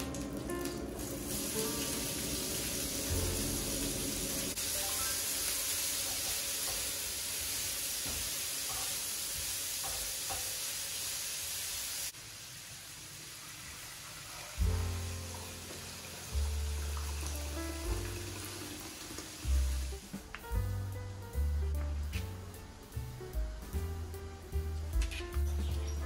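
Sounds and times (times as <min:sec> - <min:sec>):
vegetables sizzling in oil: 0:01.0 - 0:20.2
faint music: 0:14.6 - 0:26.0.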